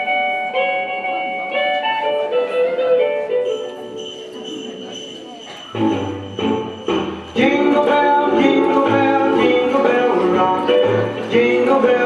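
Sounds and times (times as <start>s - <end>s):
small bells jingling: 3.4s - 9.8s.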